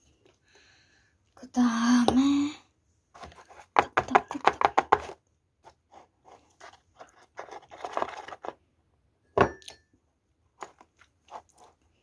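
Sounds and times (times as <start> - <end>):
plastic tray crinkling: 6.4 - 8.6.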